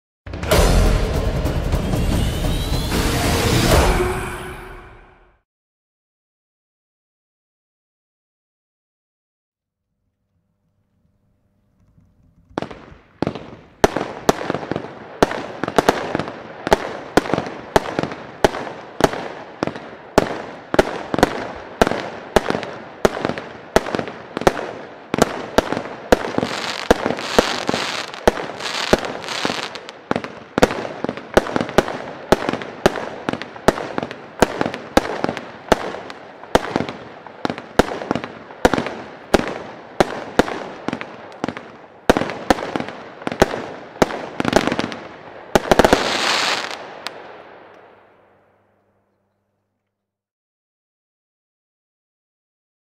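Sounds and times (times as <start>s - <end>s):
firework shots firing: 12.5s - 48.1s.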